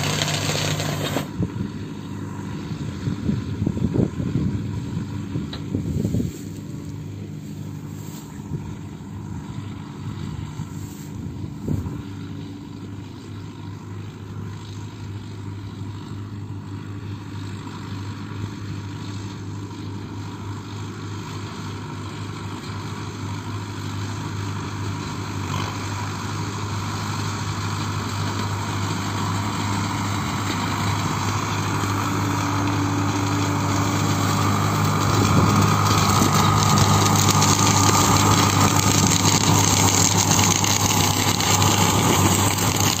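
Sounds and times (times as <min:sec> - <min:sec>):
tractor diesel engine running: 0:00.0 - 0:43.0
hiss of straw thrown up: 0:05.8 - 0:06.7, 0:07.4 - 0:08.7.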